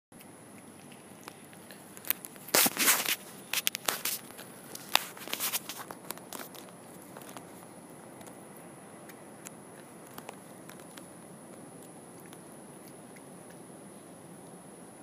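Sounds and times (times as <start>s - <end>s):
cat chewing food: 0.2s - 14.7s
paper tissue crackling: 2.4s - 7.2s.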